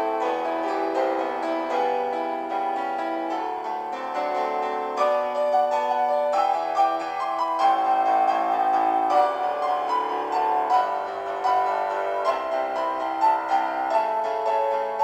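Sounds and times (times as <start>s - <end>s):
piano music: 0.0s - 15.0s.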